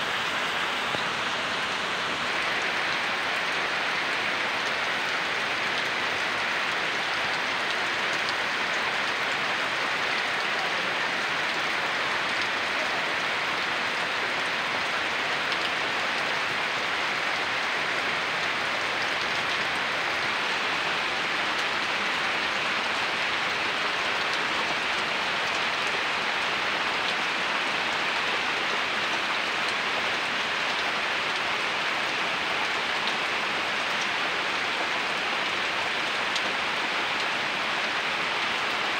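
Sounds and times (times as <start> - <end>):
heavy rain on leaves: 0.0 - 38.9.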